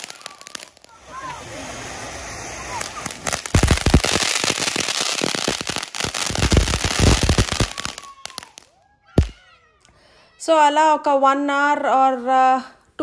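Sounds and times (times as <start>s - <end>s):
firecrackers cracking and banging: 0.0s - 9.4s.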